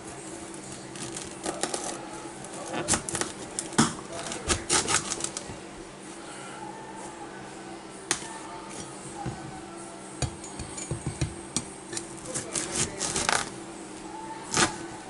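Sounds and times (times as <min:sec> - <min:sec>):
knife cutting through squash: 0:04.2 - 0:05.3, 0:12.2 - 0:13.5.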